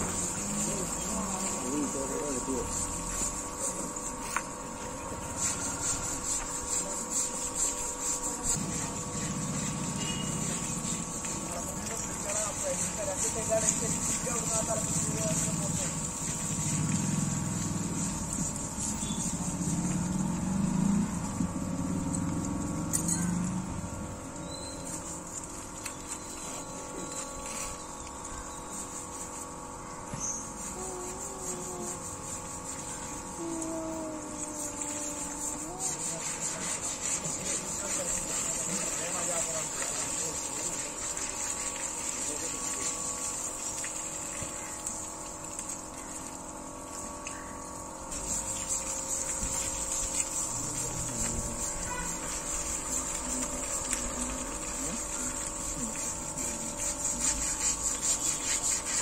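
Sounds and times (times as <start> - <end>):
hose water spraying and splashing: 0.0 - 59.0
mechanical hum: 0.0 - 59.0
steady high hiss: 24.8 - 59.0
low drone: 30.6 - 37.4.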